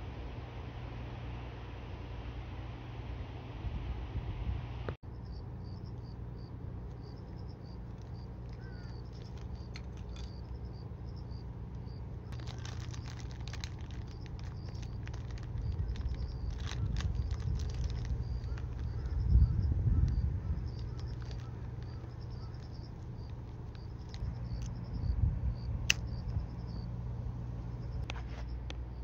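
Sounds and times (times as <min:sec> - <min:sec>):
steady low rumble: 0:00.0 - 0:29.0
high insect chirp: 0:05.0 - 0:29.0
foil packet crinkling: 0:07.7 - 0:10.6, 0:12.3 - 0:19.5, 0:20.4 - 0:24.8.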